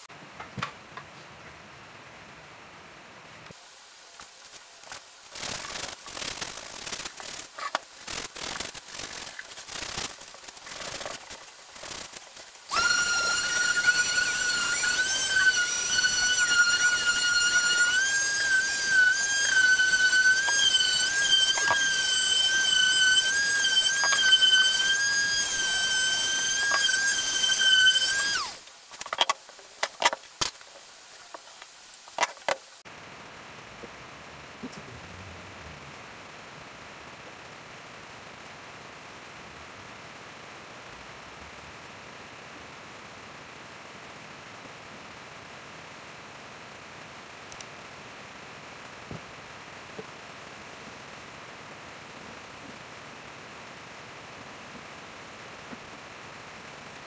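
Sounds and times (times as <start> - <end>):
electric sander whining: 12.7 - 28.6.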